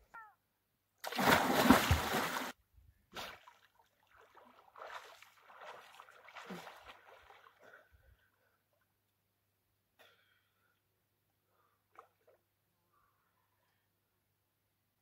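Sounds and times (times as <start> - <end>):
splashing from swimming strokes: 1.0 - 2.5, 3.2 - 7.6
swimmer plunging into water: 1.0 - 2.5.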